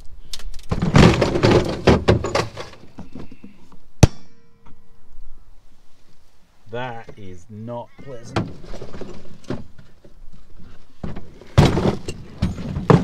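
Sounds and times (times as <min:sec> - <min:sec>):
metal parts spilling and clattering: 0:00.5 - 0:02.8, 0:11.4 - 0:13.0.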